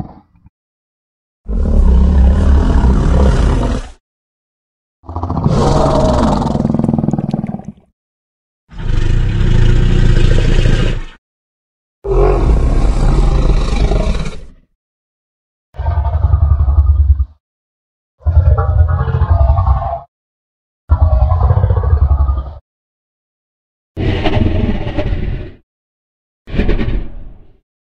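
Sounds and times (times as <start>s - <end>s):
monster roars: 1.5s - 4.0s, 5.1s - 7.2s, 8.7s - 11.2s, 12.1s - 14.6s.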